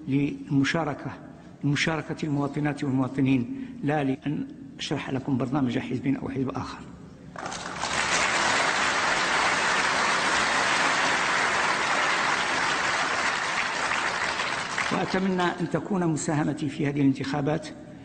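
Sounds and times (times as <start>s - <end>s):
large audience applauding: 7.4s - 15.4s.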